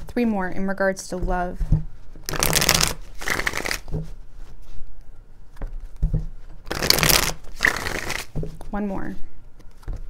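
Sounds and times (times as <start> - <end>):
cards being shuffled: 2.2 - 4.8, 6.6 - 8.6.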